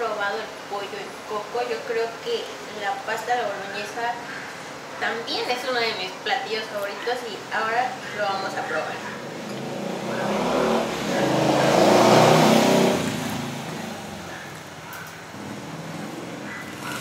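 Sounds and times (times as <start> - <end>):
vehicle engine passing by: 9.0 - 14.6, 15.3 - 17.0.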